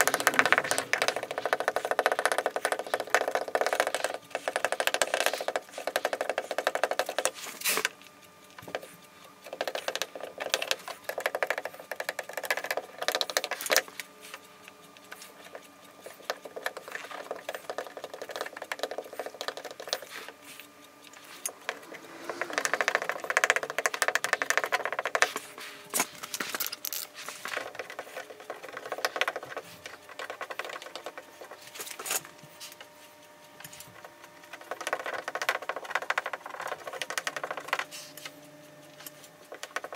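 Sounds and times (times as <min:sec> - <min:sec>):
rapid clicks: 0:00.0 - 0:39.9
welding iron scraping plastic: 0:19.1 - 0:31.0.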